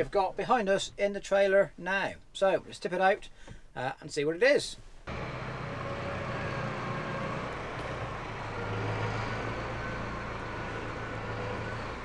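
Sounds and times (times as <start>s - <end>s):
tractor engine running: 5.1s - 12.0s.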